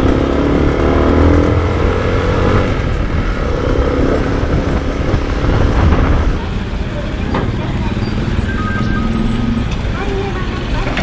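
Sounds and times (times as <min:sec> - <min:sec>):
motorcycle engine running: 0:00.0 - 0:07.9
wind and road noise: 0:00.0 - 0:11.0.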